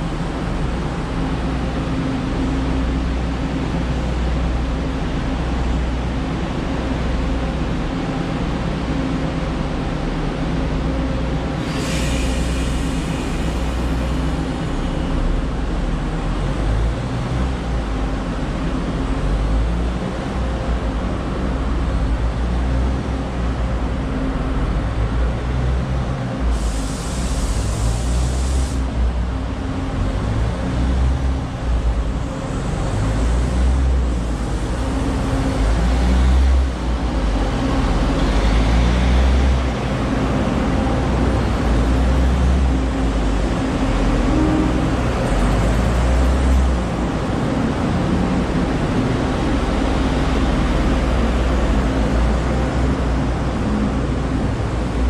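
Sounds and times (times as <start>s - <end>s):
diesel train engine humming: 0.0s - 55.0s
train rolling past: 0.0s - 55.0s
air hiss: 11.6s - 14.0s, 26.5s - 28.9s.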